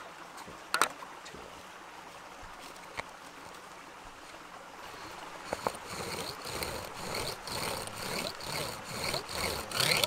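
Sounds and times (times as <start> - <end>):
wooden spindle rasping in board: 4.9 - 10.0.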